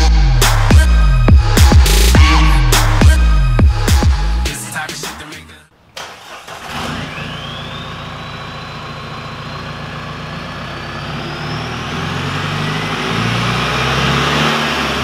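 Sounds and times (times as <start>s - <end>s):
high whistle rising in pitch: 2.0s - 3.4s, 7.2s - 8.5s
diesel engine revving: 6.0s - 15.0s.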